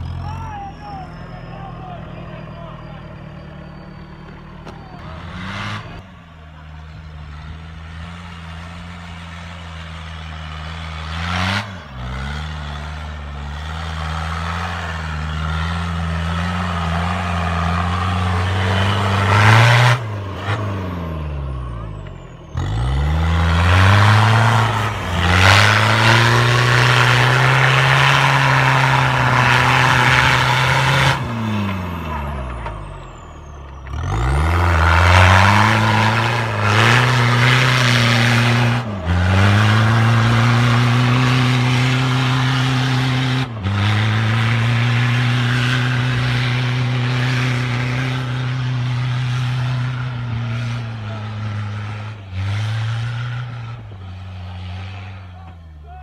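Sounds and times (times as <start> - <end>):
truck engine revving: 0.0 - 56.0.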